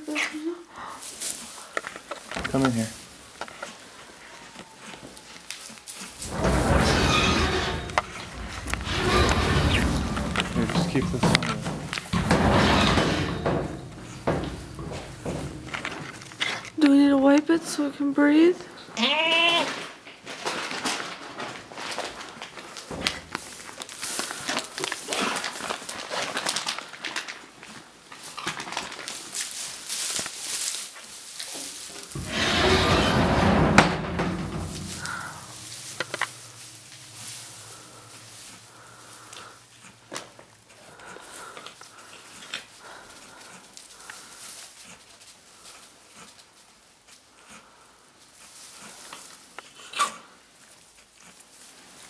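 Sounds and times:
rustling in straw and cloth: 0.0s - 17.4s, 19.4s - 32.8s, 33.4s - 52.0s
goat calling: 19.0s - 19.7s.

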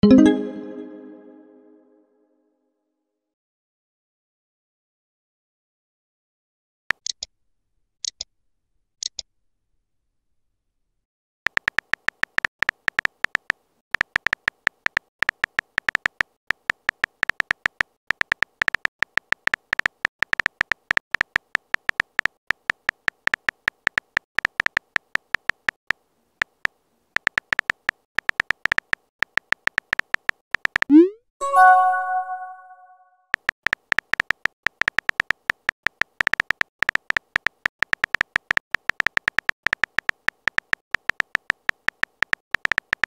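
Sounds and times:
keyboard typing beeps: 29.5s - 43.0s
short chime: 31.4s - 33.0s.

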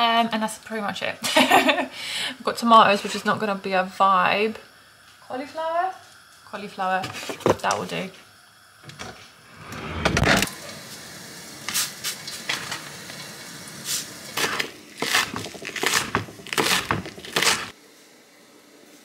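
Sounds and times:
food crackling in a pan: 10.4s - 17.8s.

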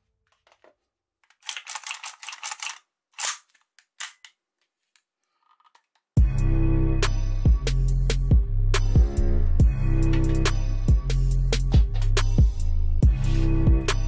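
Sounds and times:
toy rifle parts clicking and rattling: 0.3s - 6.1s
music with a beat: 6.2s - 14.0s.

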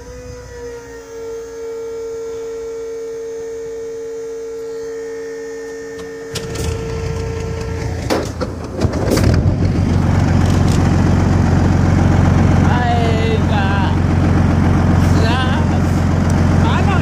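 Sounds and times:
electrical hum: 0.0s - 17.0s
engine droning: 0.0s - 17.0s
diesel engine starting: 5.8s - 17.0s.

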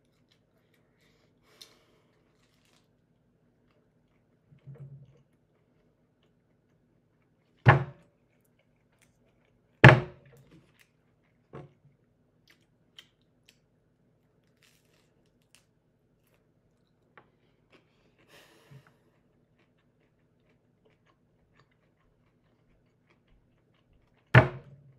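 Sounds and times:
loud knocks: 7.7s - 8.0s, 9.8s - 10.2s, 24.4s - 24.7s.

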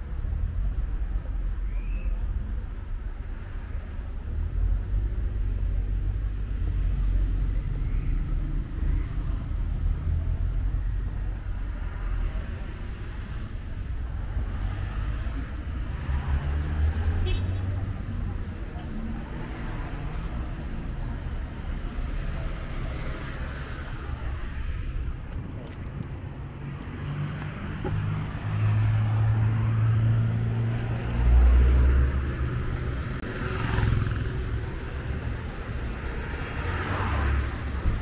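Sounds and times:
tyres on the road: 0.0s - 38.0s.

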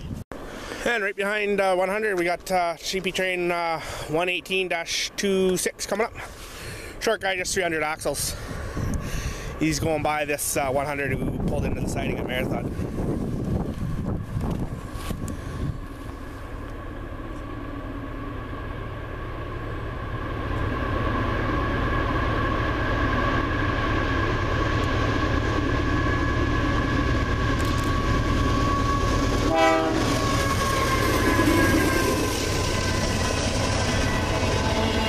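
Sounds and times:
locomotive engine and rail rumble: 0.0s - 35.0s
two-tone train horn: 28.2s - 35.0s.

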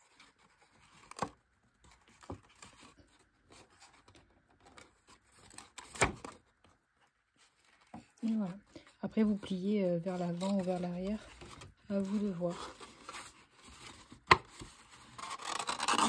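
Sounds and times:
cardstock rustling: 7.4s - 16.0s.

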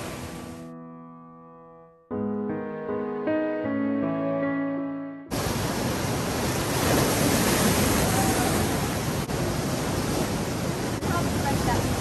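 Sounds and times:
piano music: 0.0s - 5.3s
ocean surf breaking on rocks: 5.3s - 12.0s.

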